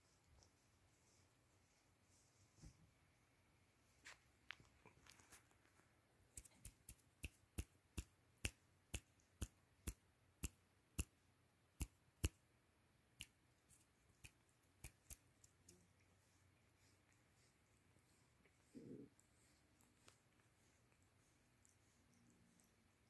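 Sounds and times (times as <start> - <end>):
kitten licking fur: 4.0 - 11.2, 13.1 - 23.0.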